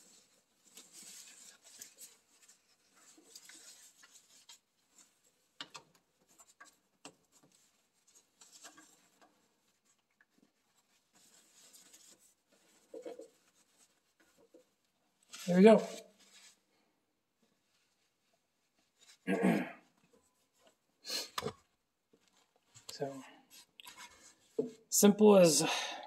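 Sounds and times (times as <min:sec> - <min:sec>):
gloved hands rustling hoses: 0:00.0 - 0:19.3.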